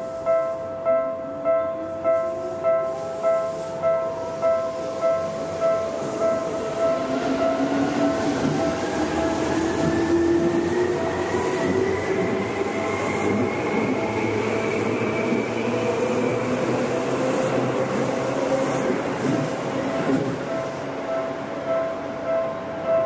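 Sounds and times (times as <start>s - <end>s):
wheels rumbling on rails: 6.7s - 20.9s.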